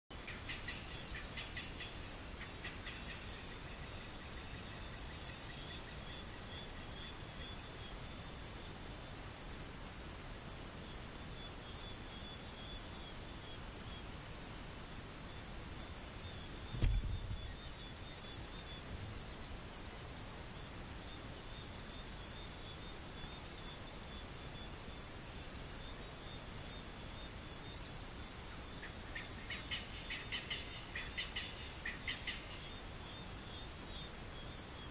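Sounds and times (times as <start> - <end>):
insects chirping: 0.2 - 34.9
high insect hiss: 0.3 - 34.9
low thump: 16.7 - 17.7.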